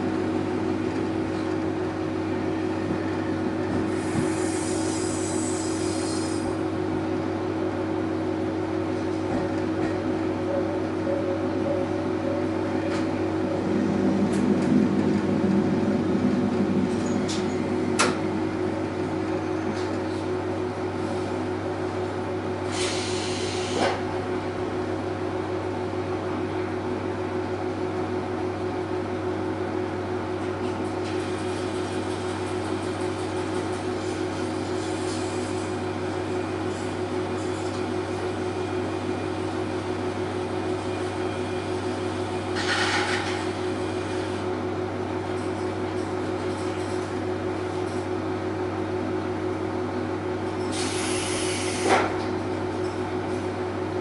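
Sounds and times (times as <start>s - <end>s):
diesel engine idling: 0.0s - 30.4s.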